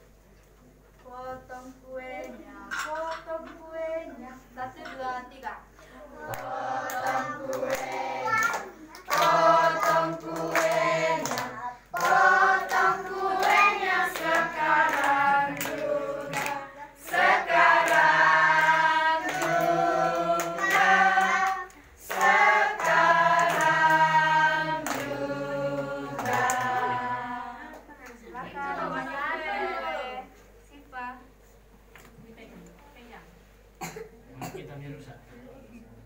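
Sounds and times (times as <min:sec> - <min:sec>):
group singing birthday song: 0:01.0 - 0:30.6
hands clapping along: 0:06.3 - 0:25.2, 0:25.8 - 0:26.9.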